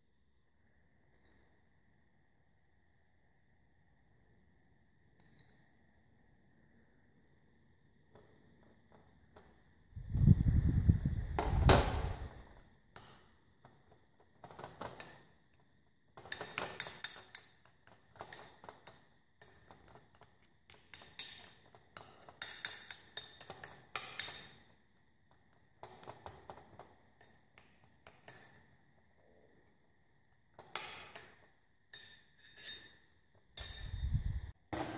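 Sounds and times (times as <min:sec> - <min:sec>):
metal spoon stirring in ceramic bowl: 0:16.3 - 0:24.8, 0:31.1 - 0:34.4.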